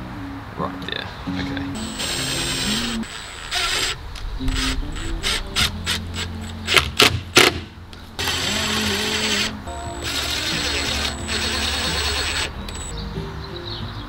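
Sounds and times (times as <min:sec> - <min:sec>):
background music: 0:00.0 - 0:14.0
impact driver driving screws: 0:01.8 - 0:12.9.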